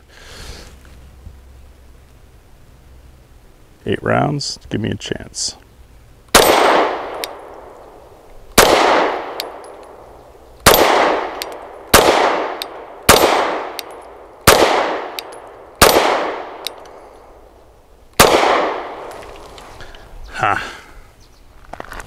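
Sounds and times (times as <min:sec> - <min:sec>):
pistol shots: 0:06.3 - 0:07.7, 0:08.6 - 0:10.0, 0:10.6 - 0:16.8, 0:18.2 - 0:19.1.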